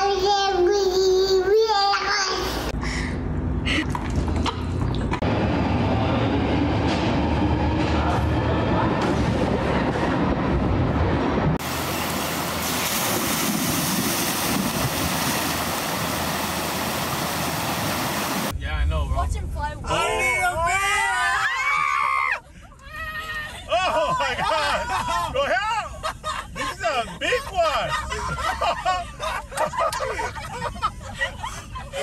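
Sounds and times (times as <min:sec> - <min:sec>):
steady rumbling: 0:02.7 - 0:20.9
floodwater rushing hiss: 0:11.6 - 0:18.5.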